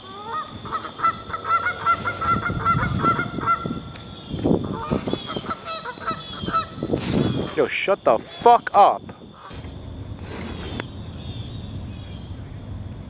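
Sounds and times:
geese honking: 0.0 - 9.6.

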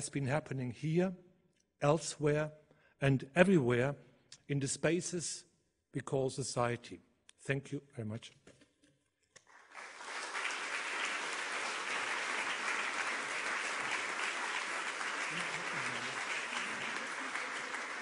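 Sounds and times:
audience applauding: 9.5 - 18.0.

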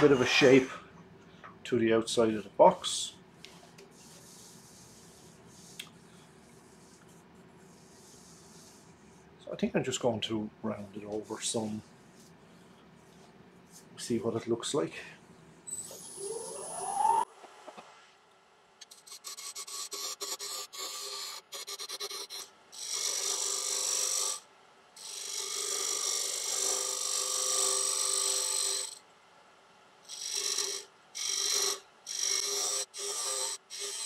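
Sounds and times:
lathe tool scraping wood: 30.1 - 34.0.

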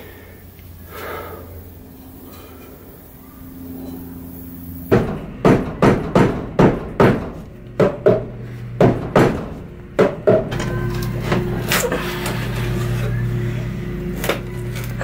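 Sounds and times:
hammer knocking on wood: 4.9 - 10.6.

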